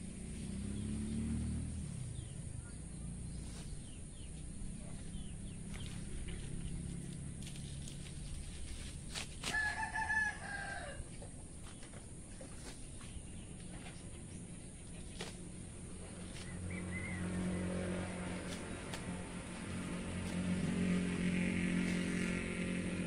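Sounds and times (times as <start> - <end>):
rooster crowing: 9.4 - 11.3.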